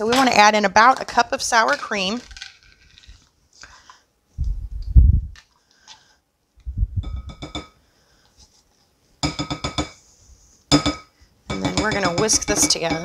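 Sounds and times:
scraper tapping glass bowl: 0:07.0 - 0:07.7, 0:10.7 - 0:13.0.

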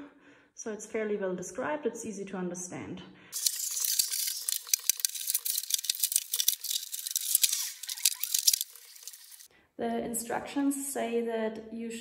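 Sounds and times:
packaging rustling: 0:03.4 - 0:09.5
small sharp clicks and rattles: 0:03.4 - 0:09.5.

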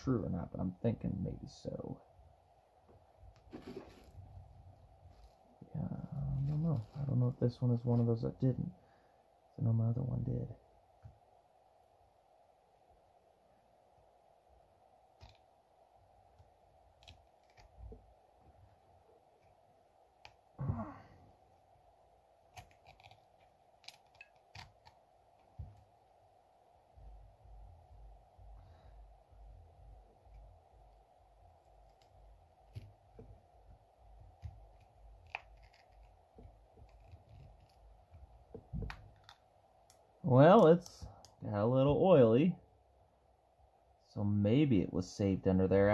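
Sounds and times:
handling sound: 0:03.4 - 0:04.4
metal pick scratching and clicking: 0:34.7 - 0:36.2.

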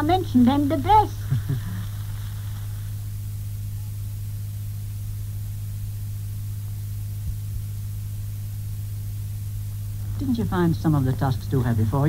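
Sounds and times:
faint recording hiss: 0:00.0 - 0:12.0
low electrical hum: 0:00.0 - 0:12.0.

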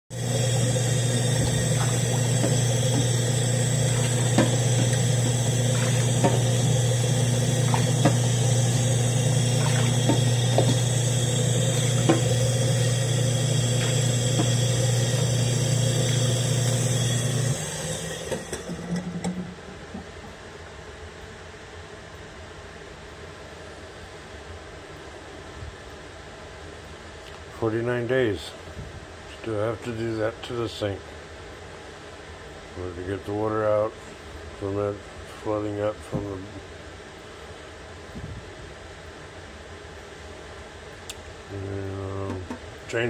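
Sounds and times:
loud steady low hum: 0:00.1 - 0:18.2, 0:19.6 - 0:43.0
cup scooping water in a sink: 0:00.2 - 0:17.5.

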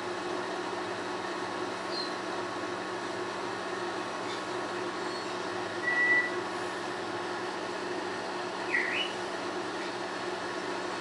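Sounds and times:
parrot whistling: 0:05.8 - 0:06.3, 0:08.7 - 0:09.2.

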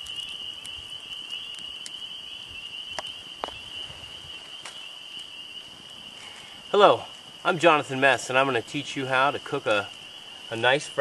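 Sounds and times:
campfire pops and snaps: 0:00.0 - 0:06.5
night insects trilling: 0:00.0 - 0:11.0.

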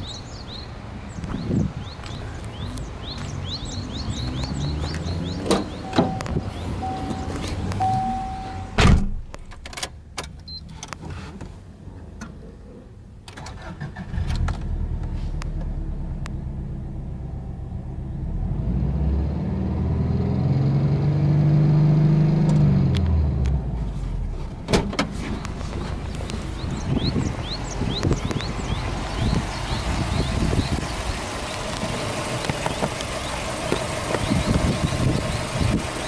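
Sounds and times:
car engine starting and idling: 0:02.1 - 0:36.0
thump: 0:08.8 - 0:09.3, 0:24.7 - 0:25.2.

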